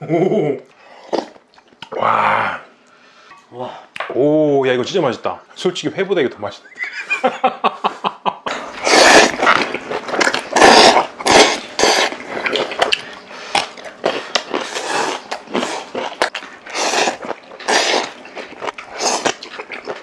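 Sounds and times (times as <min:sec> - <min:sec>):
people slurping noodles: 0:08.5 - 0:20.0.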